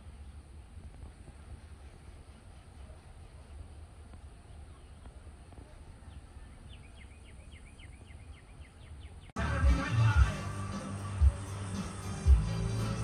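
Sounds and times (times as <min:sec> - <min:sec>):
songbird chirping: 0:02.8 - 0:13.0.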